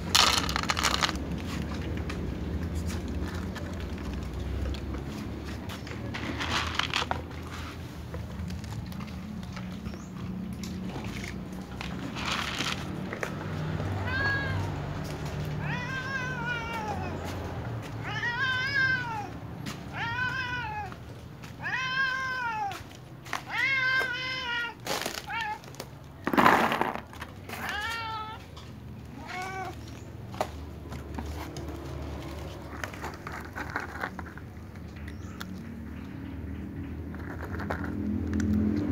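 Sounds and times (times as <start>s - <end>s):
cat meowing: 13.8s - 17.3s, 17.9s - 21.0s, 21.6s - 22.8s, 23.4s - 25.7s, 27.5s - 28.5s, 29.1s - 29.9s.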